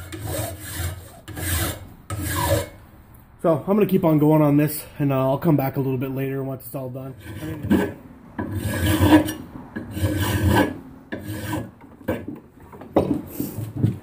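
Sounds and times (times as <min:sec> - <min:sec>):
hand file rasping on steel: 0:00.0 - 0:02.8, 0:07.2 - 0:12.3.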